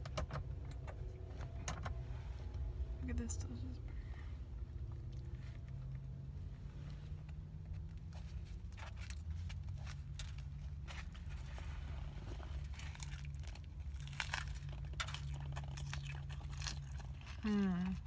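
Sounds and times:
low hum in car cabin: 0.0 - 18.0
burger wrapper crinkling: 7.7 - 11.5, 12.6 - 18.0
biting into burger: 12.9 - 18.0.

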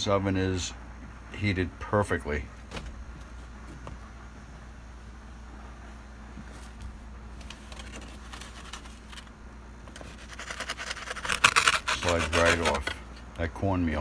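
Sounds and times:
faint low hum: 0.0 - 14.0
pizza peel scraping on brick: 9.9 - 13.1.

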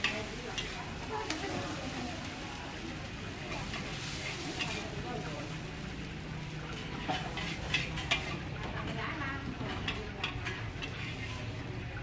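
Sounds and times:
spatula clanking against wok: 6.7 - 11.2.

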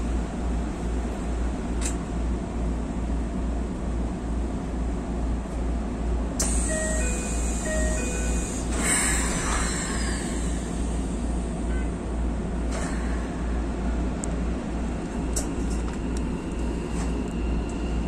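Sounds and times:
train equipment low hum: 0.0 - 18.0.

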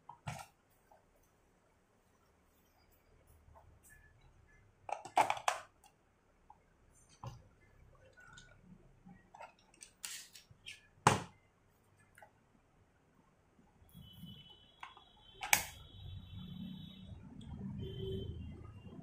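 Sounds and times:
plastic toy clicks and knocks: 4.9 - 5.7.

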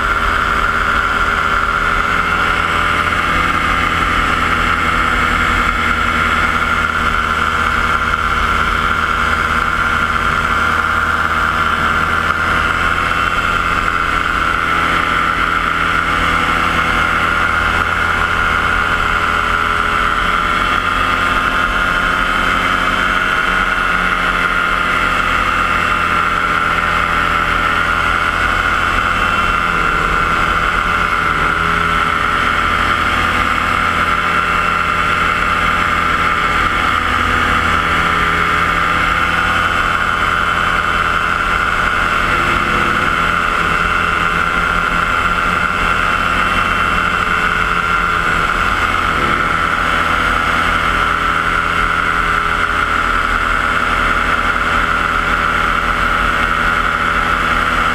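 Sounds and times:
paramotor engine droning: 0.0 - 57.9.

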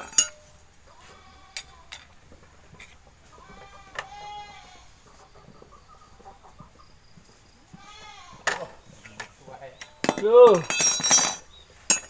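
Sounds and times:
farm animal call: 2.8 - 10.6.

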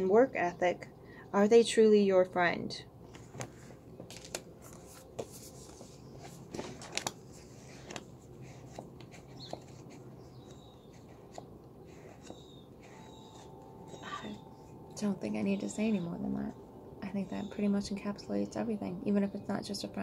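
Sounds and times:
faint low hum: 0.0 - 20.0
card and book handling rustles: 3.1 - 14.4.

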